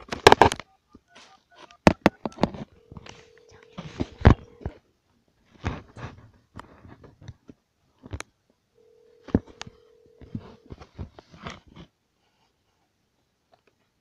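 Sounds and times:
phone handling rustles: 1.8s - 4.8s, 8.9s - 11.6s
telephone ringback tone: 2.2s - 4.7s, 8.8s - 10.8s.

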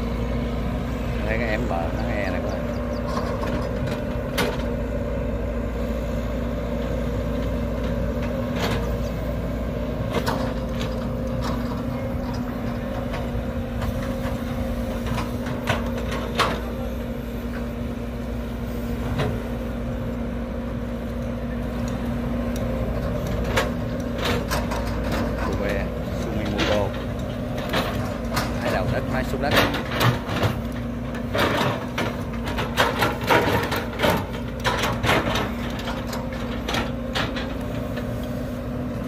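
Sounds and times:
excavator diesel engine running: 0.0s - 39.0s
excavator bucket clanking: 1.2s - 4.8s, 22.6s - 38.9s.

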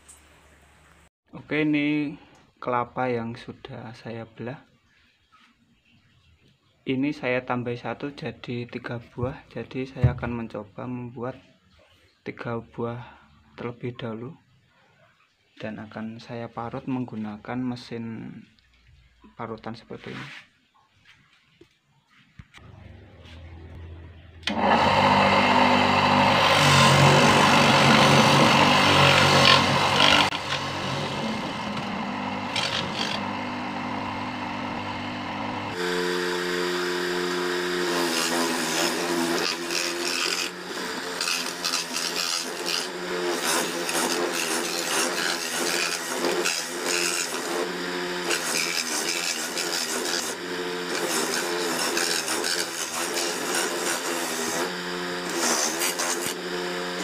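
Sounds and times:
electric grater motor humming: 23.8s - 57.0s
coconut flesh being grated: 24.6s - 33.9s, 35.8s - 57.0s.

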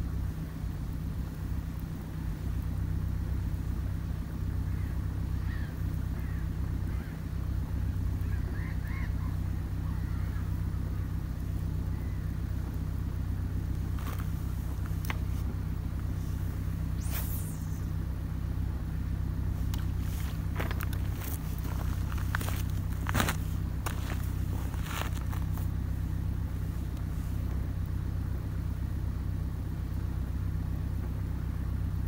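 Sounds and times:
low engine hum: 0.0s - 32.0s
faint bird calls: 4.6s - 11.2s, 11.8s - 12.8s, 16.1s - 18.0s.

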